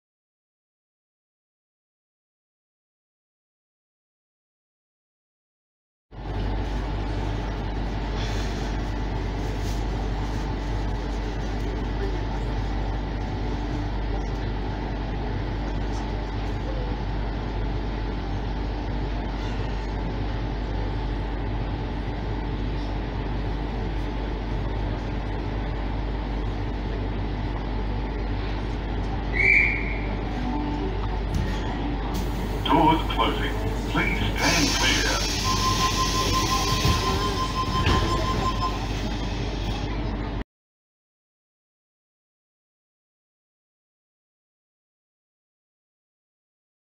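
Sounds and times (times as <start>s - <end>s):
train carriage interior hum: 6.1s - 40.4s.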